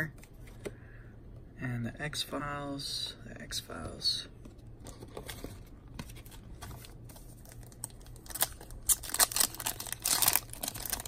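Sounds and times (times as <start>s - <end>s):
foil wrapper crinkling: 7.4s - 11.0s.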